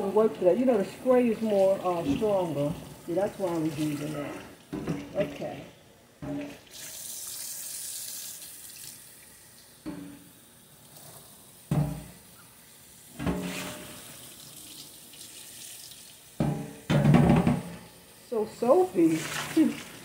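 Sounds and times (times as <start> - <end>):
tap running water: 0.0 - 5.6, 6.2 - 11.0, 11.6 - 12.2, 13.0 - 20.0
knocks in the sink: 11.7 - 12.2, 16.4 - 17.8.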